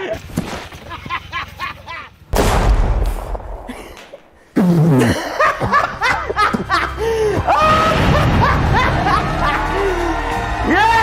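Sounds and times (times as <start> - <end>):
man laughing heartily: 0.0 - 2.2, 3.7 - 4.2, 4.8 - 10.0
loud blast: 2.4 - 3.7.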